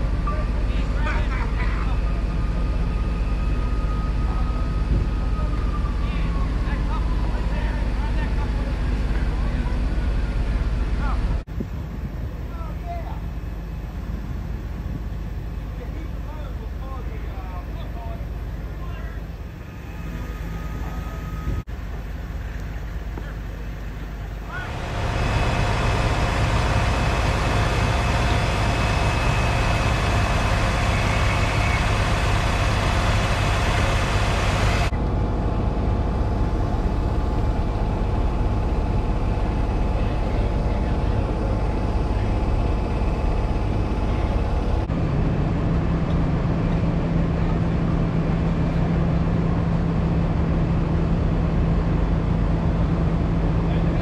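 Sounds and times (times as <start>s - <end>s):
fire engines droning: 0.0s - 54.0s.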